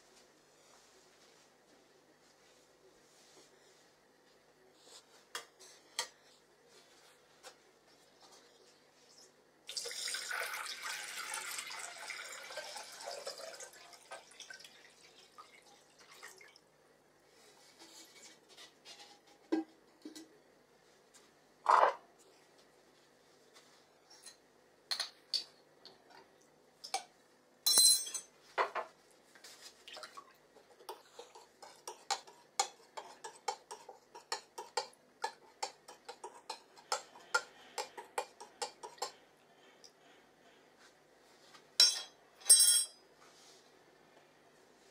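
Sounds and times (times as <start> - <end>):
water poured into a glass jar: 9.7 - 16.5
glass clink: 27.7 - 28.3, 41.8 - 43.0
spoon stirring clinking on glass: 30.8 - 39.2, 41.8 - 43.0.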